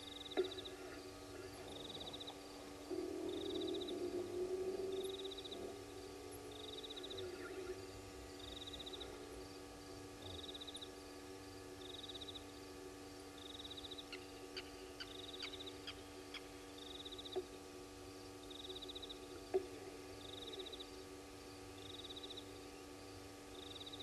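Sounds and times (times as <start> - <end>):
insect high pulsed trill: 0.0 - 17.4, 18.1 - 19.4
steady low hum: 0.0 - 24.0.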